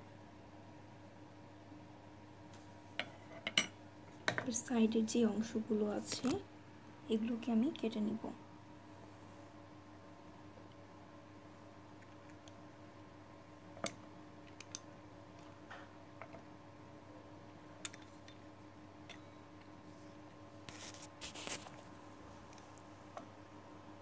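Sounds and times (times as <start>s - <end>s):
steady low hum: 0.0s - 24.0s
scratchy rustle: 20.7s - 21.9s.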